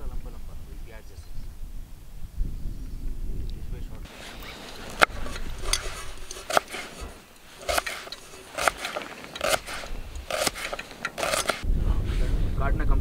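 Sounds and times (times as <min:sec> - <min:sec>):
knife slicing onion on board: 0:04.9 - 0:11.6.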